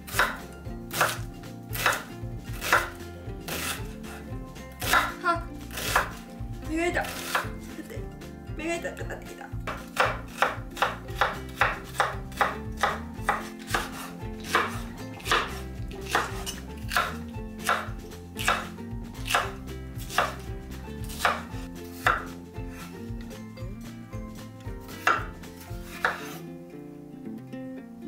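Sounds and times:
knife chopping on wooden board: 0.0 - 4.2, 4.8 - 6.2, 7.0 - 7.6, 9.6 - 22.9, 25.0 - 26.4.

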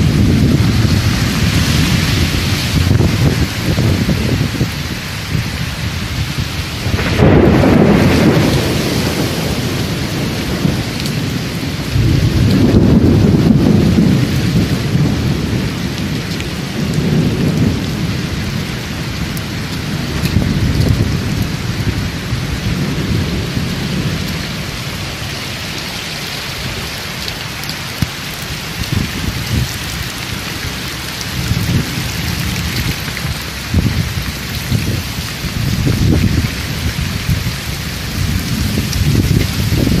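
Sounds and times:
loud low rumbles: 0.0 - 15.7
floodwater running over cobbles: 0.0 - 40.0
heavy rain hissing: 0.0 - 40.0.

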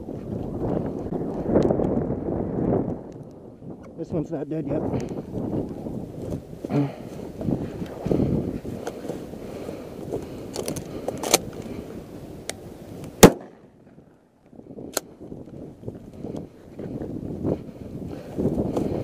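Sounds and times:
wind on microphone: 0.0 - 19.0
shotgun shot: 13.2 - 13.6.

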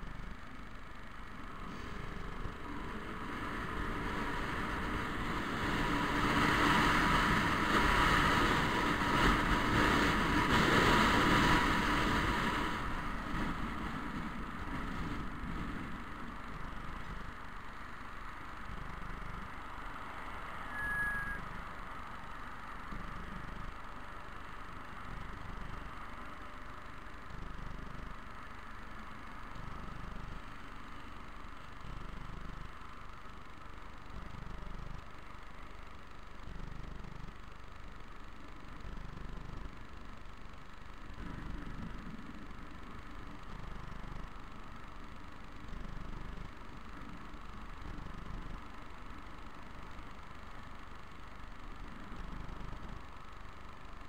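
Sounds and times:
scooter wind and running noise: 1.4 - 17.7
high squeak: 20.7 - 21.4.

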